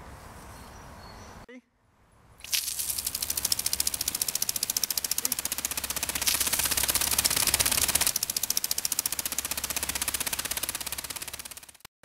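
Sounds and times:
water spray hissing: 2.4s - 11.8s
sprinkler arm rattling clicks: 2.4s - 11.9s.

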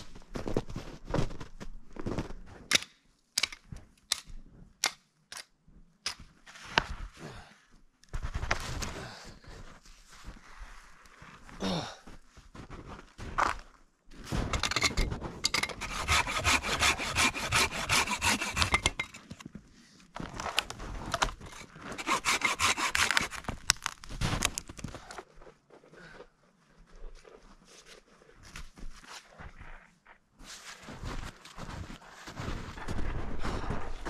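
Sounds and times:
hand saw cutting a log: 15.7s - 19.4s, 21.5s - 23.6s.

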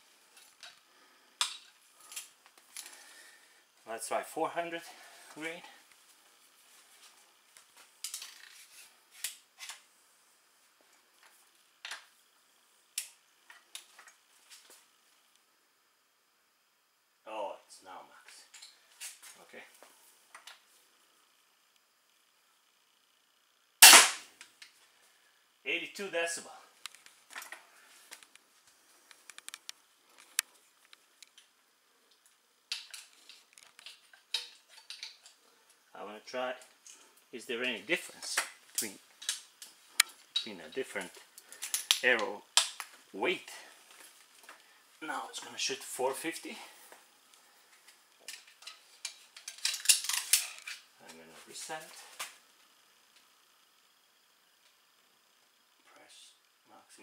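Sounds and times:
handling clicks and ticks: 29.1s - 31.5s.

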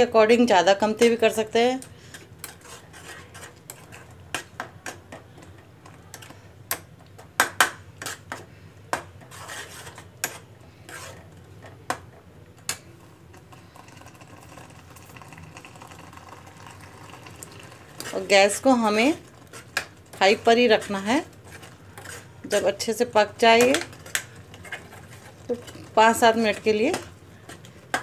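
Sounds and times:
metal spoon scraping a metal pan: 2.1s - 5.0s, 8.0s - 8.5s, 9.2s - 11.3s, 18.0s - 28.0s.

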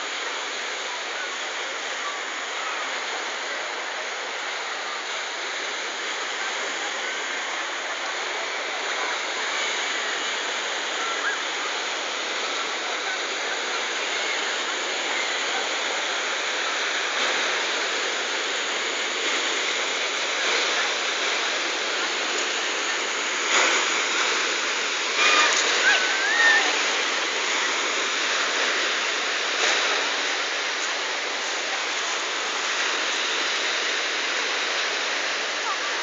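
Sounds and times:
surf washing on pebbles: 0.0s - 36.0s.

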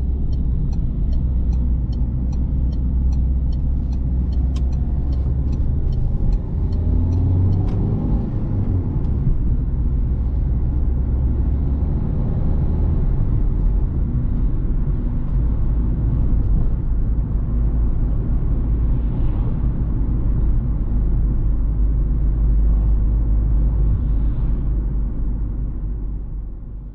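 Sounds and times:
car engine drone: 0.0s - 26.9s
light ticks: 0.2s - 7.8s.

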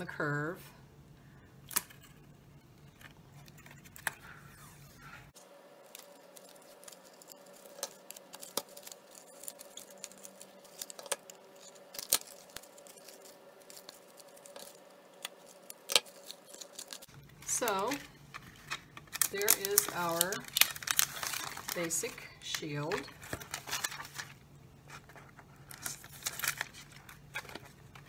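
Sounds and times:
plastic clicks and crinkles: 5.8s - 28.0s.

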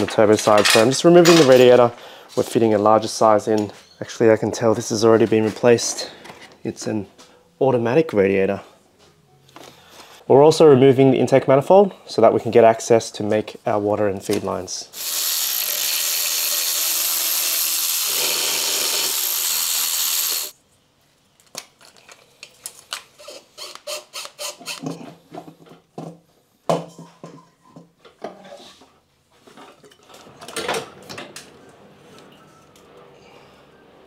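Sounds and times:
tools and metal parts clicking: 0.5s - 1.8s
power tool running: 15.0s - 20.6s.

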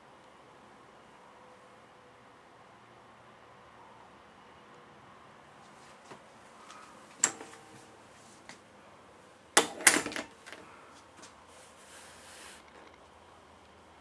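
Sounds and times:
metallic door click: 7.2s - 7.6s.

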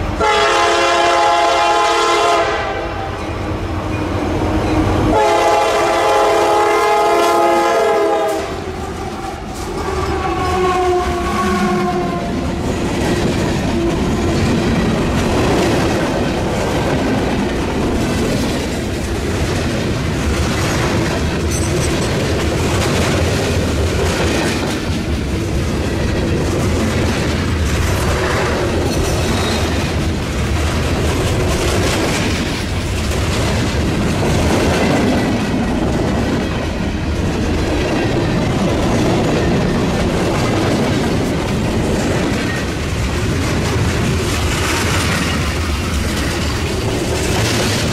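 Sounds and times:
train wheels rumbling and clacking: 0.0s - 47.9s
locomotive horn: 0.2s - 3.3s, 4.9s - 12.5s.

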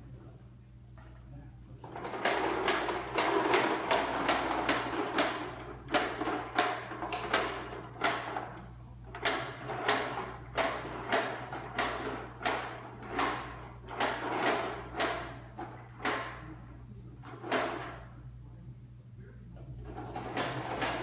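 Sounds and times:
toy lawnmower clacking on tile: 2.0s - 8.6s, 9.2s - 16.4s, 19.9s - 21.0s.

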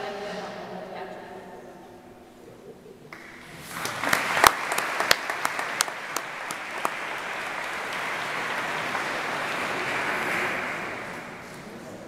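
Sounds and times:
sharp close claps: 3.1s - 11.7s
audience applauding: 3.1s - 11.8s.

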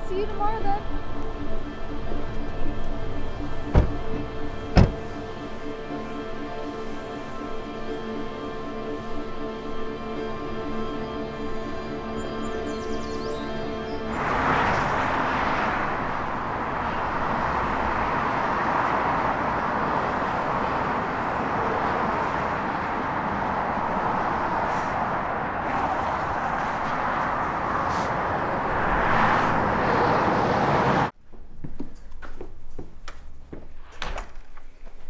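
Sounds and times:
road traffic rushing: 0.0s - 31.2s.

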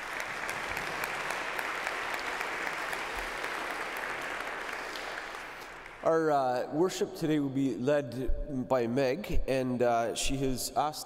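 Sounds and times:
congregation applauding: 0.0s - 6.2s.

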